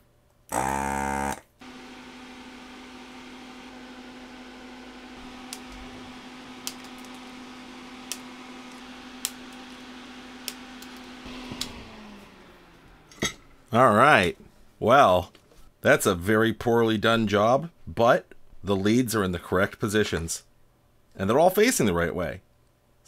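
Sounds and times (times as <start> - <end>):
flush cutters snipping leads: 0.5 - 13.5
vacuum pump buzzing: 0.5 - 13.7
motor hum winding down: 0.5 - 13.8.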